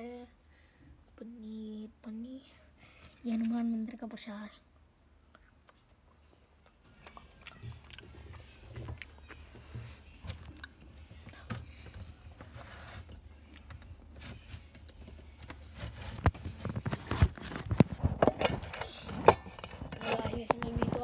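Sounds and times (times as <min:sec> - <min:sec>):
refrigerator hum: 0:00.0 - 0:21.0
plastic containers knocking and rustling: 0:07.6 - 0:21.0.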